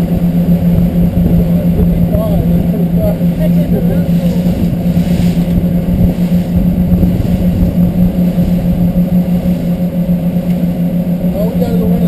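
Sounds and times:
outboard motors droning: 0:00.0 - 0:12.0
rush of wind and water: 0:00.0 - 0:12.0.

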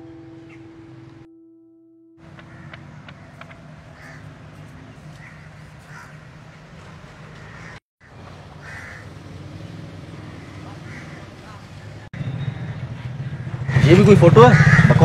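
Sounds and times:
crows cawing: 0:02.2 - 0:06.3, 0:07.4 - 0:09.2, 0:10.3 - 0:11.6, 0:12.6 - 0:15.0.

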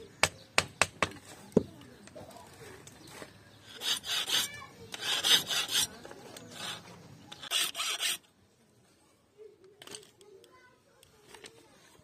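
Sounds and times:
file rasping on wood: 0:03.7 - 0:08.2.

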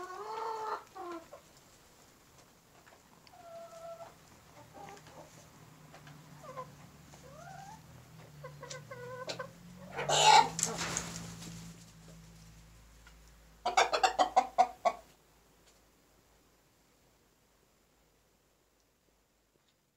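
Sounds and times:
hens clucking: 0:00.0 - 0:12.2, 0:13.0 - 0:15.2
loud sharp chicken calls: 0:06.4 - 0:11.6, 0:13.6 - 0:15.1
loud rustling flurry: 0:10.4 - 0:12.6.

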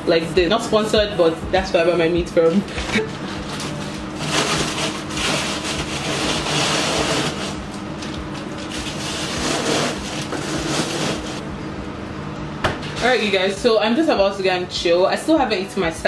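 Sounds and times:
steady low hum: 0:00.0 - 0:16.0
plastic packs rustling and bumping: 0:02.6 - 0:11.4.

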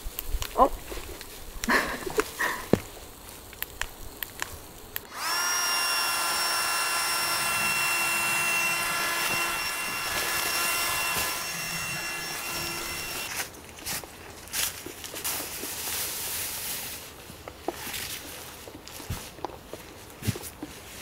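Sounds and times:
small electric motor whine: 0:05.0 - 0:13.4.

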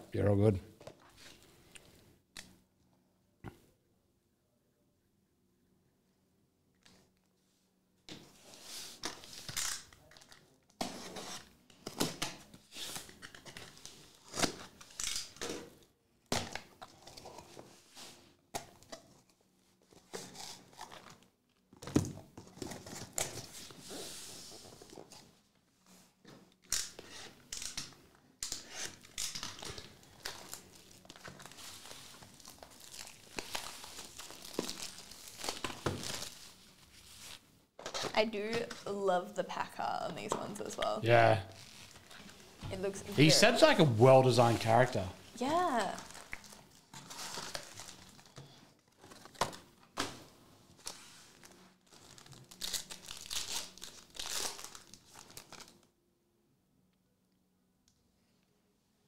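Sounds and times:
tape and cardboard tearing: 0:10.8 - 0:15.7, 0:26.7 - 0:31.4
packaging crinkling: 0:28.5 - 0:37.4, 0:41.5 - 0:42.5, 0:45.5 - 0:49.7, 0:50.8 - 0:55.9.

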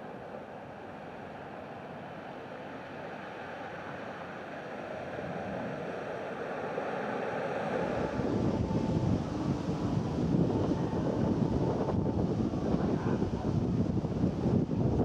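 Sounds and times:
sea surf on rocky shore: 0:03.3 - 0:15.0.

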